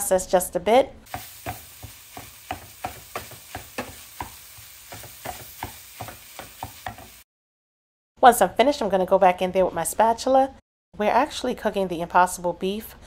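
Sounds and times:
plastic chopper knocking in skillet: 1.1 - 7.2
meat sizzling: 1.1 - 7.3.

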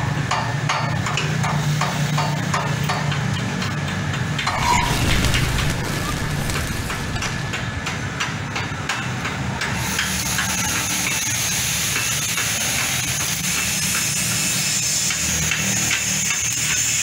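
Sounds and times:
welding arc crackling and sizzling: 4.3 - 8.6
low hum: 4.4 - 8.6.

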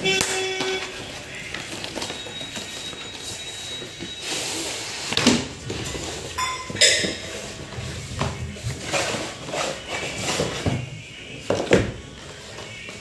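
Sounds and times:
hard objects knocking and clinking: 5.2 - 7.4.

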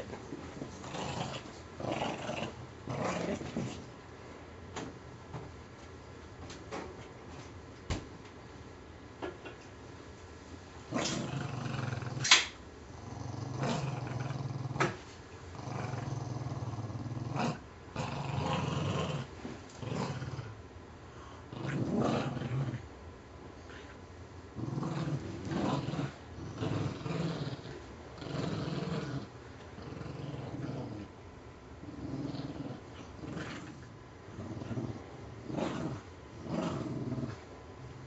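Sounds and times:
dogs play-growling: 0.0 - 4.0, 10.9 - 20.6, 21.2 - 22.9, 23.6 - 31.2, 31.8 - 38.0
sharp click: 12.2 - 12.6.

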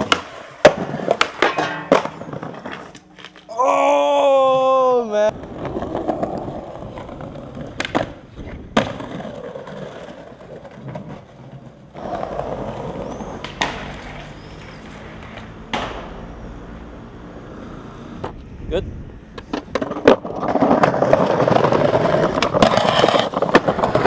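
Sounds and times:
skateboard clacks: 0.0 - 3.5, 5.3 - 16.3, 19.3 - 24.0
skateboard wheels rolling on stone: 0.0 - 3.9, 5.3 - 18.5, 19.1 - 24.0.

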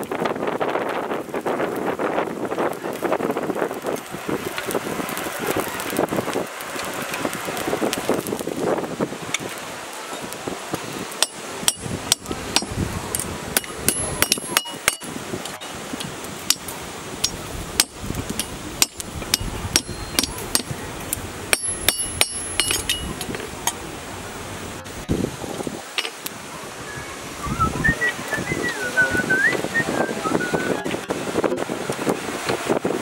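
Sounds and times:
hammer striking iron on anvil: 11.2 - 12.7, 13.6 - 15.1, 17.2 - 20.7, 21.5 - 23.1.

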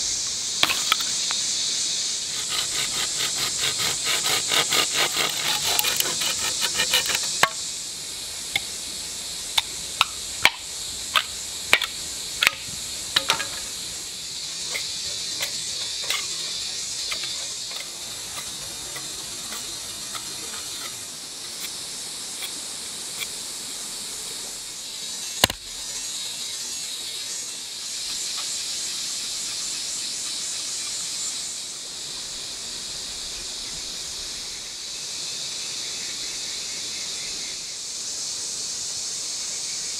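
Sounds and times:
steady high hiss: 0.0 - 39.9
saw cutting bamboo: 2.2 - 7.6, 25.4 - 25.6
cleaver splitting bamboo cracks: 2.5 - 7.6, 25.4 - 25.7.

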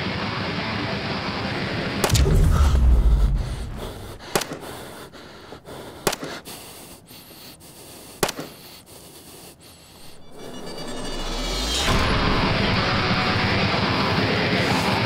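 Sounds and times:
sharp cracks: 1.7 - 6.7, 8.1 - 8.6
deep boom: 2.0 - 4.8, 10.1 - 13.9
man panting: 4.2 - 10.2.

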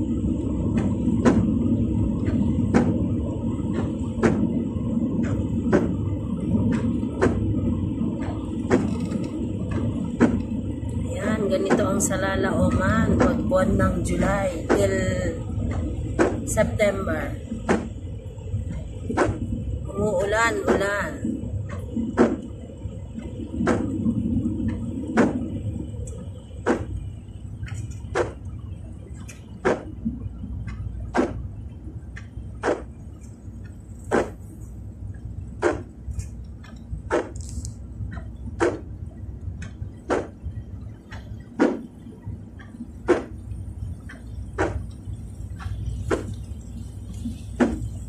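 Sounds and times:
car driving rumble: 0.0 - 48.0
rain: 0.0 - 48.0
windshield wipers swishing: 0.0 - 48.0.

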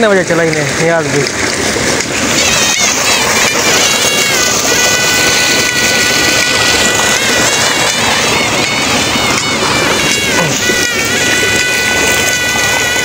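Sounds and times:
water gushing from pipe: 0.0 - 13.0.

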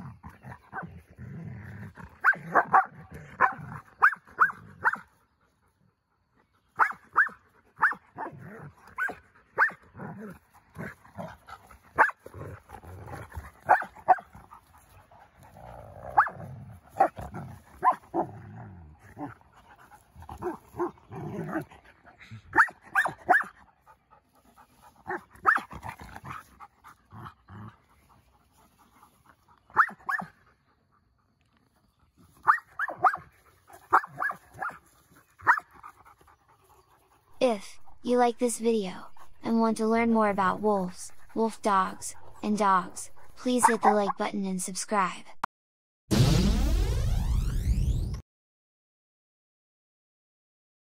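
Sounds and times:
puppies growling: 0.0 - 4.8, 7.4 - 22.9, 23.7 - 29.8, 39.0 - 39.5, 40.8 - 44.0
puppies barking and yipping: 2.2 - 5.0, 6.8 - 8.3, 8.9 - 9.8, 12.0 - 12.2, 13.6 - 15.0, 22.5 - 24.0, 24.7 - 27.0, 29.3 - 31.0, 32.4 - 40.2.

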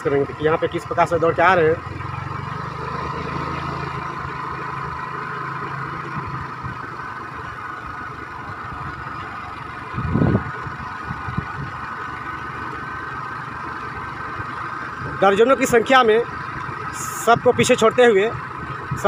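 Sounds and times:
vehicle engine humming: 0.0 - 19.0
low rumble: 7.8 - 11.8.

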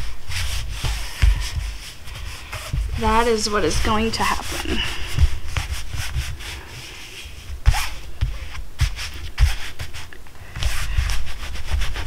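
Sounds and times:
dull thumps: 0.0 - 6.7
hands rubbing nylon fabric: 0.0 - 12.0.

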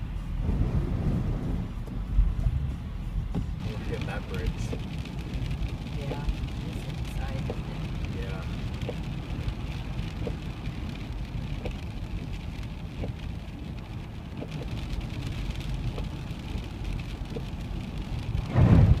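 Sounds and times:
road rumble: 0.0 - 19.0
loud low thump: 18.5 - 19.0.

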